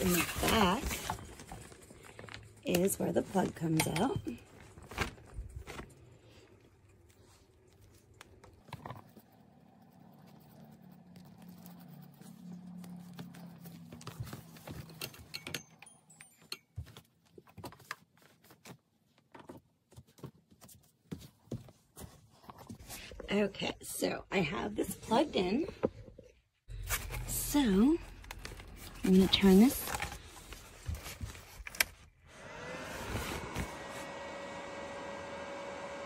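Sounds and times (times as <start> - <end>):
nylon cover rustling: 0.0 - 6.4.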